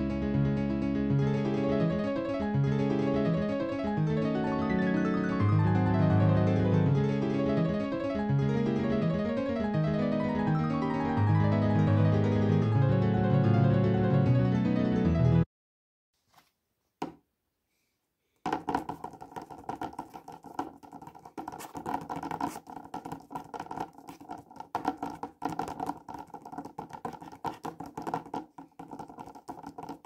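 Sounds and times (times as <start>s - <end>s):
fingertips tapping on paper: 18.4s - 30.0s.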